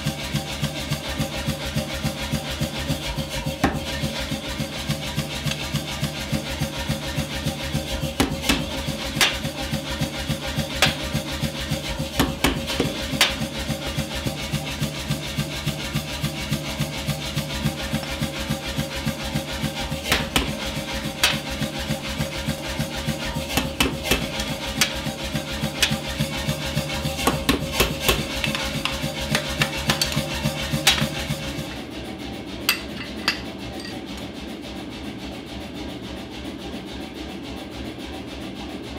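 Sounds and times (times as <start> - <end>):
hammer striking punch on anvil: 8.2 - 9.5, 20.1 - 20.6, 32.7 - 34.0.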